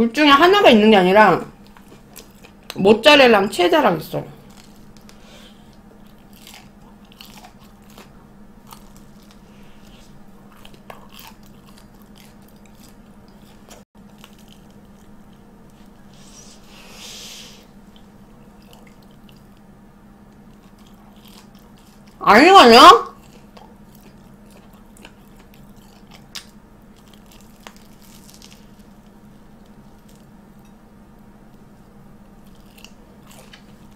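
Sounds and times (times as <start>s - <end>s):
crunchy biting and chewing: 1.6s - 2.8s, 4.4s - 22.2s, 23.0s - 30.7s, 31.5s - 33.9s
brief hiss: 16.2s - 17.6s.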